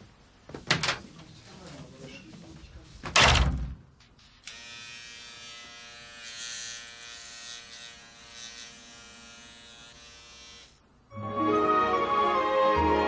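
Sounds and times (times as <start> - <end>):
electric shaver buzzing: 4.3 - 10.8.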